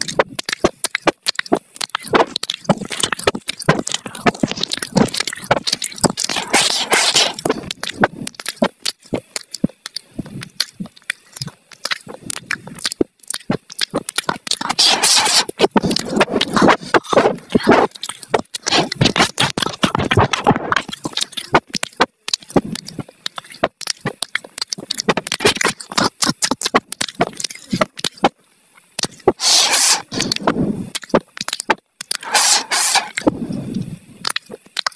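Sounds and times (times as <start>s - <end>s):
dog crunching vegetables: 0.0s - 28.3s, 29.0s - 33.3s.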